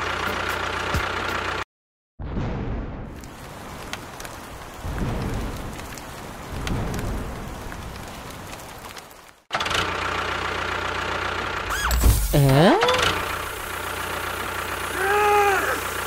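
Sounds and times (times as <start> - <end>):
engine: 0.0 - 1.7, 9.5 - 16.0
low rumbles: 2.2 - 9.3
rain falling on ground: 3.1 - 11.1, 12.4 - 16.0.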